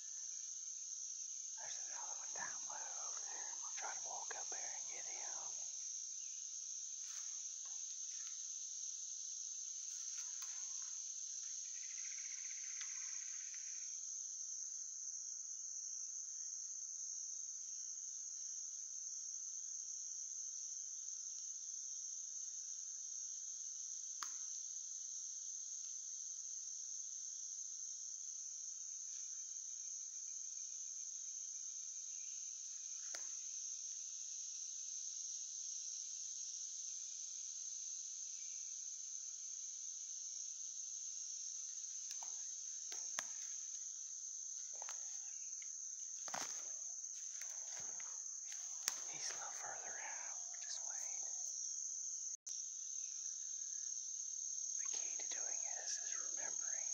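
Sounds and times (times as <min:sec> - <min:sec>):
insects droning: 0:00.0 - 0:56.9
faint sharp click: 0:24.2 - 0:24.4, 0:33.1 - 0:33.4, 0:47.4 - 0:49.4.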